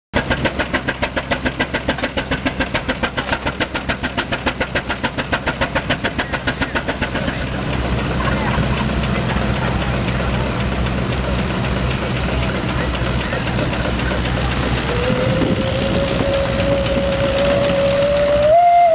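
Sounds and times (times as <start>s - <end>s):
steam engine exhaust chuffing: 0.2s - 18.9s
steam engine rumble: 0.2s - 18.9s
brief high hiss: 6.1s - 7.5s.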